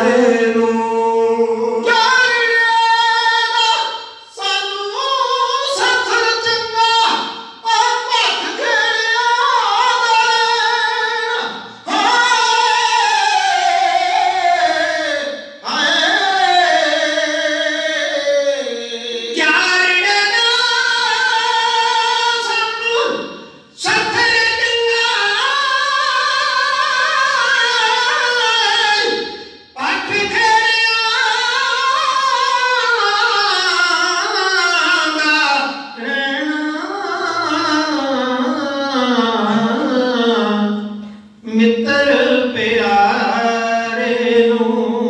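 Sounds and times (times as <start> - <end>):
men singing into microphones: 0.0 - 45.0.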